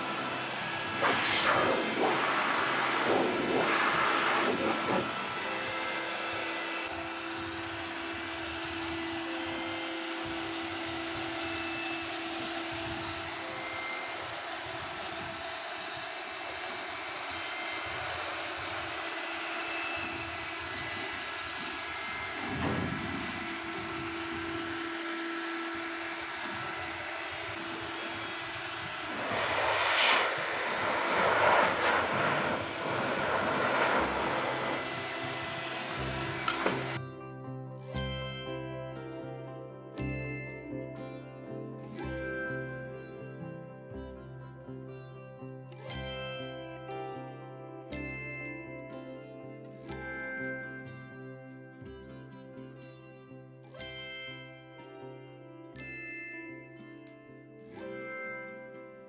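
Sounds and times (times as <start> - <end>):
air rushing from wand: 0.0 - 7.0, 9.3 - 37.0
vacuum cleaner motor whine: 0.0 - 37.0
air rushing: 0.1 - 6.5, 27.6 - 37.0.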